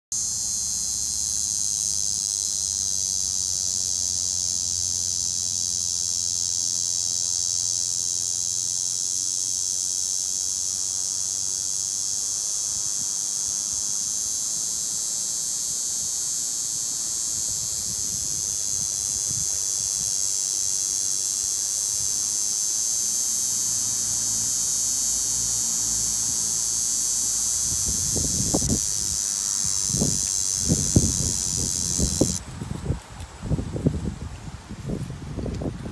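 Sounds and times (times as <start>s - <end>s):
cicadas buzzing: 0.1s - 35.9s.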